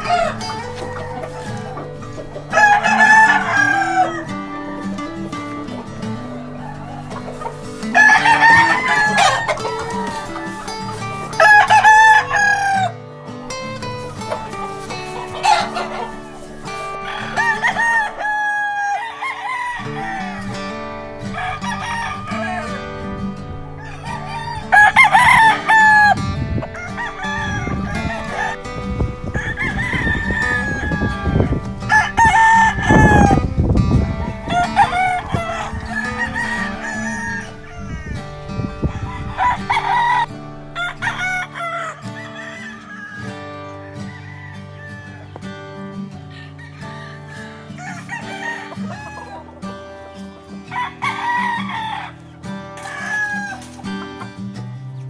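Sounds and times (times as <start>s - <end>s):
background music: 0.0s - 30.9s, 36.3s - 37.8s
roosters crowing: 0.0s - 45.6s, 46.2s - 54.2s.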